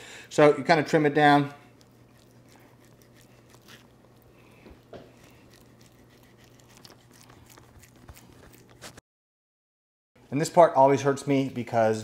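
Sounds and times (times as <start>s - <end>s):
knife cutting through meat: 1.8s - 9.0s.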